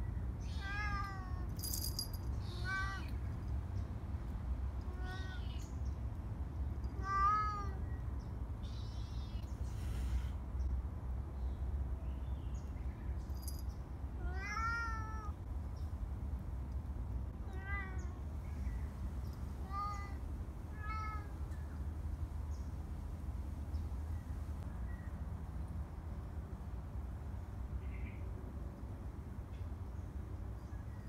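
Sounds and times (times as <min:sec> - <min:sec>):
cat meowing: 0:02.4 - 0:03.2, 0:14.2 - 0:15.4.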